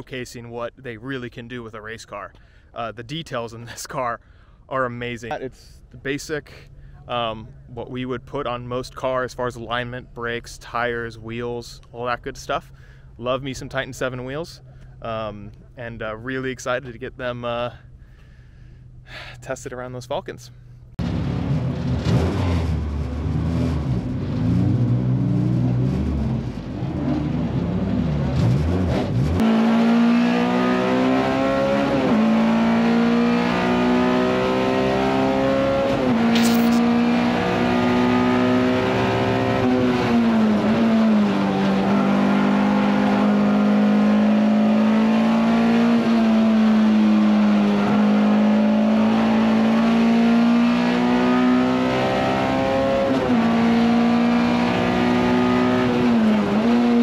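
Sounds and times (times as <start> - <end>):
race car engine revving: 21.3 - 57.0.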